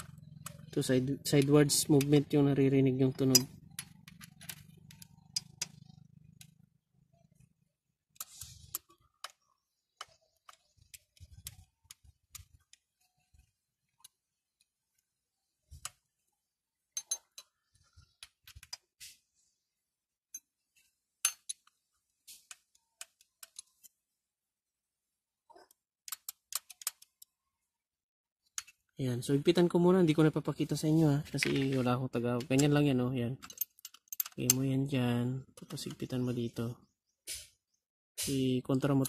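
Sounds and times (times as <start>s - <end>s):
metallic clicks of hand tools: 3.2s - 6.5s, 26.1s - 27.3s, 33.4s - 34.8s.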